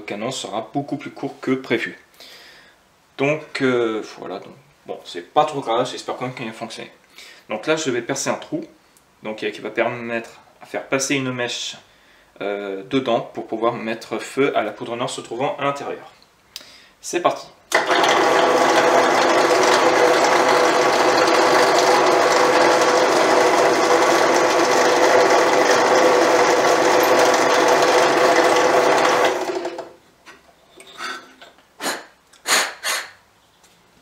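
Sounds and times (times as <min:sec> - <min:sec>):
motor winding down: 0:17.7 - 0:29.9
drill press running: 0:17.7 - 0:30.0.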